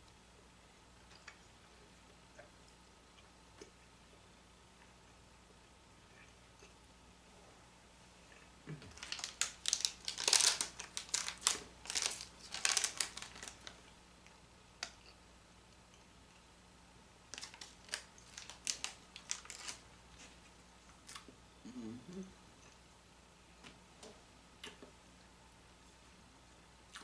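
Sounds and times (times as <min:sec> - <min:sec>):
wrapper crinkling: 0:08.9 - 0:13.8, 0:17.3 - 0:20.3.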